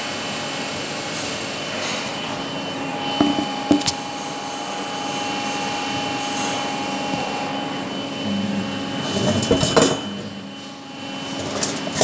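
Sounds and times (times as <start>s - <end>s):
workshop machinery hum with whine: 0.0s - 12.0s
sharp knocks: 3.2s - 3.9s.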